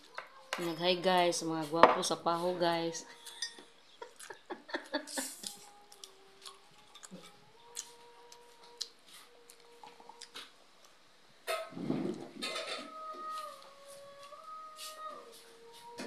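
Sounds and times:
glass and spoons clicking on plates: 3.2s - 3.7s.

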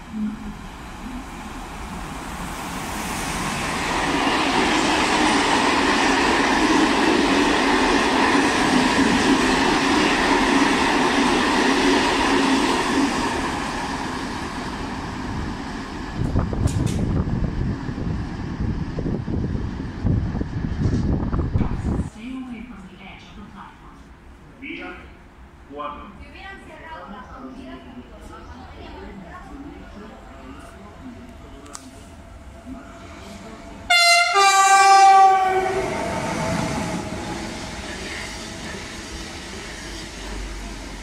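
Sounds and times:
freight train wheels on rails: 0.0s - 22.1s, 28.2s - 41.0s.

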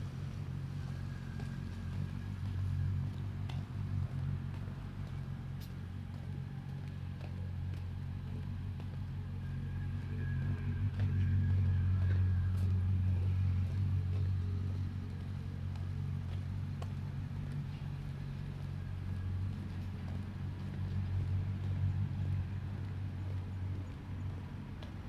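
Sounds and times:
passing cars rumble: 0.0s - 25.0s.

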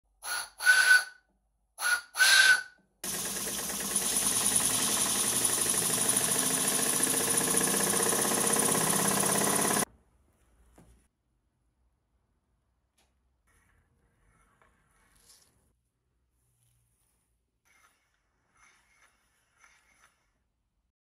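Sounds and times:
steam hissing with whistle: 0.3s - 1.1s, 1.8s - 2.7s
small steam engine running: 2.3s - 9.9s.

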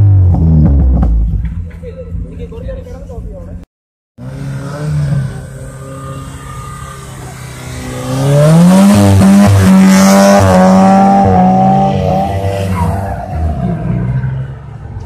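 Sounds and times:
car engine revving: 4.2s - 15.0s.

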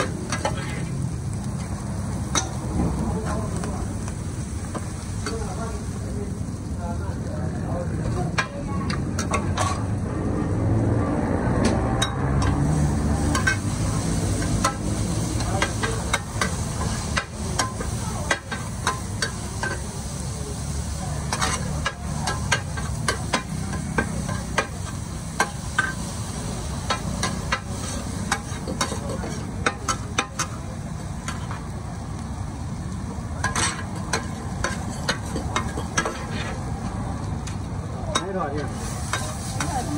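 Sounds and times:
metal utensils scraping a wok: 0.0s - 3.4s, 8.0s - 10.4s, 11.5s - 31.7s, 33.4s - 36.8s, 38.1s - 39.9s
food sizzling: 0.0s - 39.9s.

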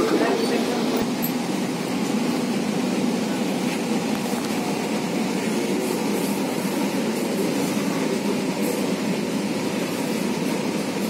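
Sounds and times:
train running noise inside carriage: 0.0s - 11.0s.

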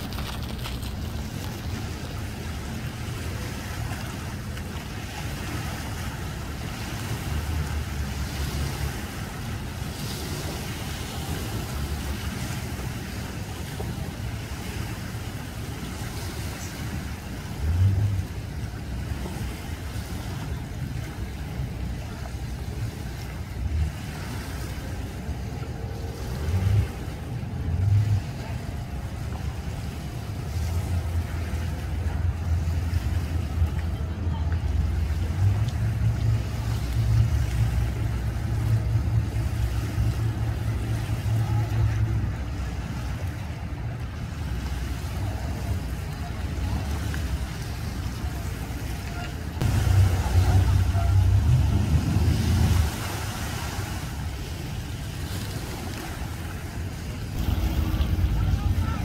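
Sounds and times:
idling engines rumbling: 0.0s - 55.2s, 56.0s - 59.0s
water lapping: 0.0s - 59.0s
wind buffeting microphone: 49.5s - 59.0s.

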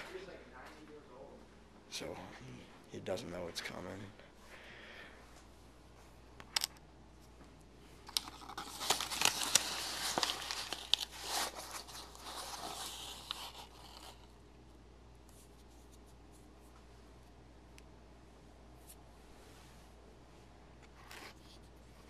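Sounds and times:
paper bag crinkling: 8.0s - 14.3s.

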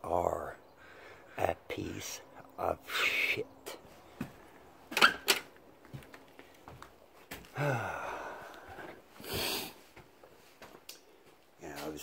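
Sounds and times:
man sighing: 7.5s - 9.8s
hushing burst of breath: 7.6s - 9.8s.

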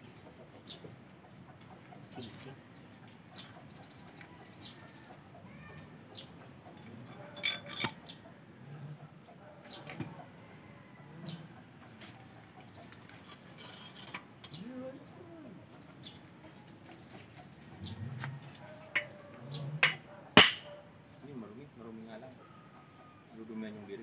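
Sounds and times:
faint bird calls: 0.2s - 7.4s
metal parts clinking: 7.1s - 8.1s.

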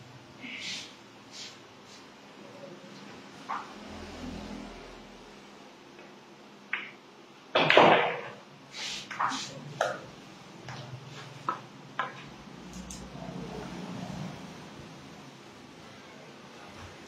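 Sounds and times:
billiard balls clacking: 7.6s - 8.5s.

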